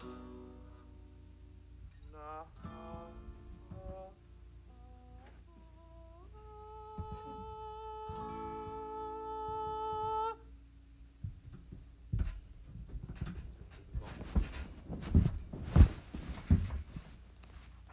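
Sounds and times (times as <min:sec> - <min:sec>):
clicks and knocks in a room: 0:06.8 - 0:10.4, 0:11.0 - 0:17.9.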